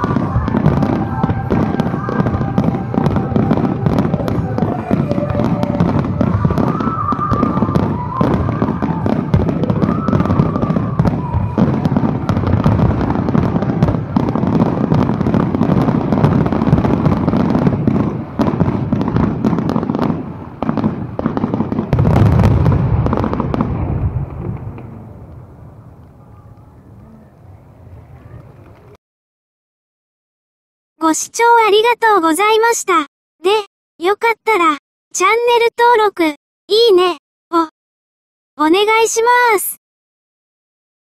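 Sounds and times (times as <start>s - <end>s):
fireworks bangs and crackles: 0.0s - 29.0s
low fireworks booms: 0.0s - 29.0s.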